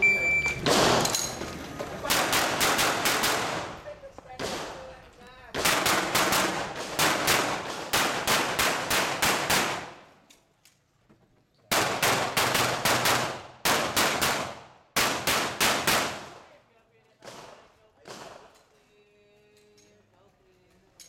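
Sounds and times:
rapid pistol shots: 2.0 - 3.8, 4.4 - 10.0, 11.7 - 16.6, 17.2 - 18.6.

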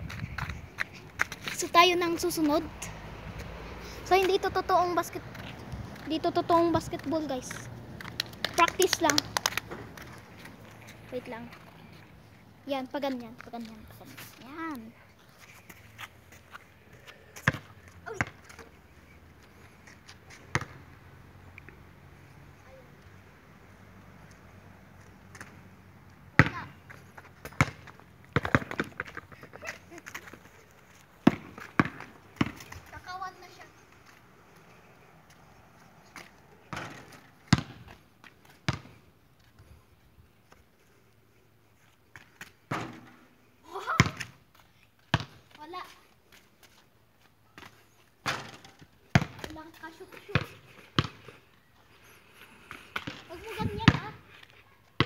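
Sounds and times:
basketball bouncing on concrete: 17.4 - 18.6, 20.5 - 20.8, 26.3 - 30.4, 31.2 - 33.1, 36.2 - 38.0, 38.6 - 39.0, 42.7 - 43.2, 43.9 - 44.4, 45.0 - 45.6, 47.6 - 51.3, 52.9 - 54.2
basketball thuds on concrete: 26.4 - 26.7, 27.4 - 29.2, 31.2 - 32.7, 36.7 - 37.9, 48.2 - 49.6, 53.8 - 54.0.

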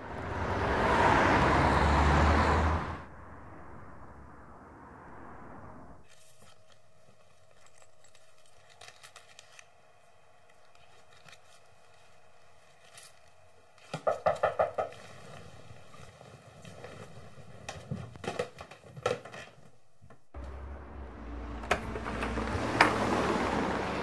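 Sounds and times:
wallet and coin purse handled: 6.1 - 13.9.

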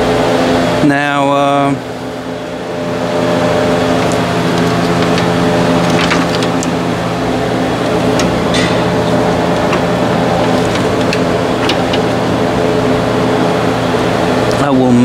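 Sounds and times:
mechanical hum: 0.0 - 15.0
clicks and scrapes of hard parts: 4.0 - 6.8, 7.9 - 12.4.

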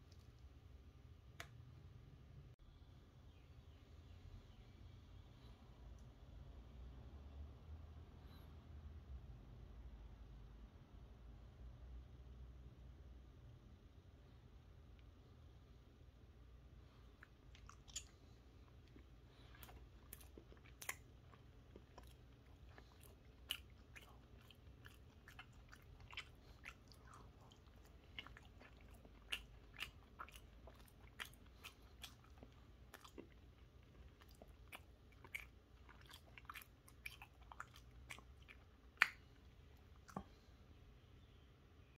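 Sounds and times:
person chewing with mouth clicks: 17.0 - 40.5.

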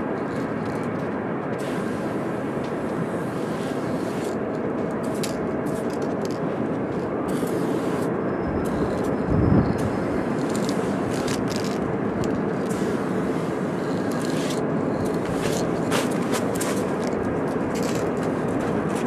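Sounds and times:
steady rushing background noise: 0.0 - 19.0
spray paint can hissing: 3.2 - 4.4, 7.3 - 9.1, 9.8 - 11.8, 12.5 - 18.2.

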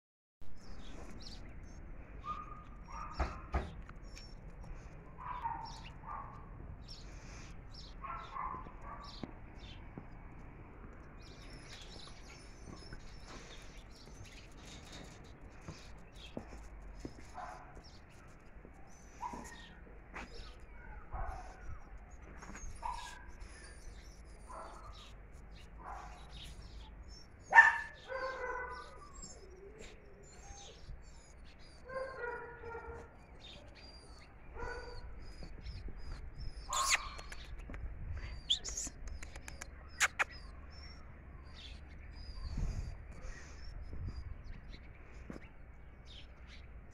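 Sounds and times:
small birds chirping: 0.6 - 46.9
dogs barking: 2.2 - 3.8, 5.1 - 6.6, 7.8 - 9.8, 20.4 - 21.9, 22.8 - 23.3, 25.8 - 26.8, 27.4 - 29.6, 31.8 - 33.2, 34.0 - 35.4, 36.6 - 37.4.

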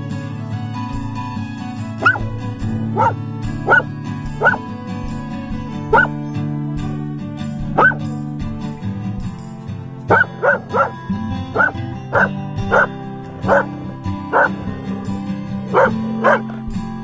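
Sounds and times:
acoustic guitar music: 0.0 - 17.0
dog barking: 2.0 - 4.7, 5.8 - 6.2, 7.6 - 8.1, 10.1 - 16.7.

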